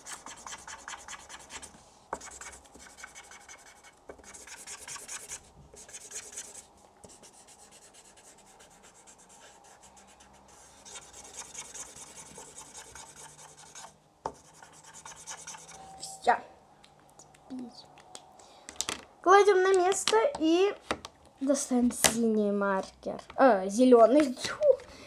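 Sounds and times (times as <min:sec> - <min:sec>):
marker scribbling on paper: 0:00.0 - 0:15.9.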